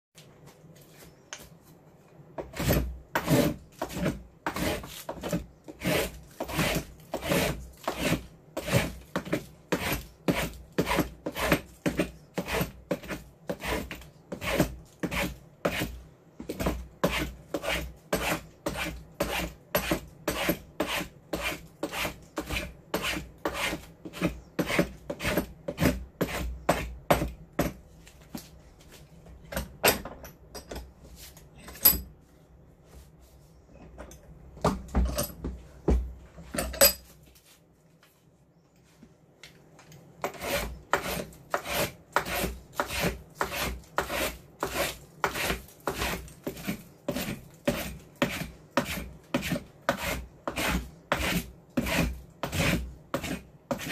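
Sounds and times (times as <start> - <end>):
spokeshave scraping wood: 2.4 - 16.0, 16.6 - 26.9, 40.2 - 53.9.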